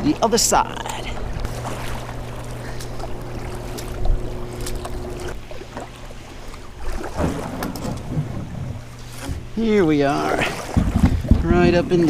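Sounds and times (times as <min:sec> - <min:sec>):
water washing along hull: 0:00.0 - 0:12.0
paddle splashing in water: 0:00.9 - 0:12.0.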